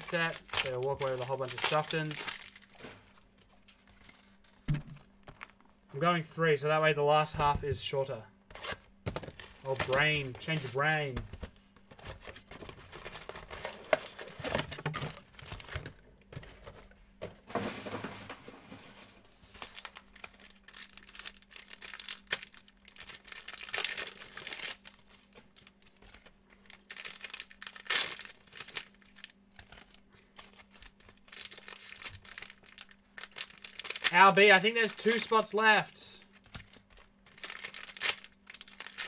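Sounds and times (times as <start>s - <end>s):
plastic wrapping crinkling and tearing: 0.0s - 4.1s, 8.6s - 11.1s, 12.0s - 16.0s, 19.4s - 39.0s.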